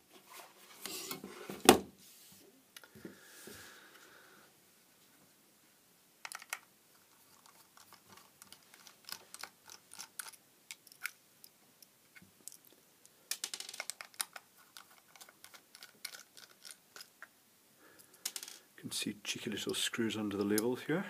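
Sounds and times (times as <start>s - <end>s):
screwdriver clicking and scraping: 7.3s - 11.2s.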